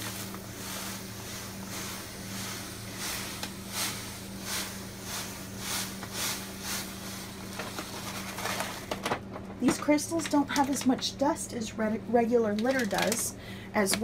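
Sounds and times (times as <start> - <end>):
steady low hum: 0.0 - 14.0
cat litter pouring into plastic tray: 5.6 - 9.2, 12.6 - 13.3.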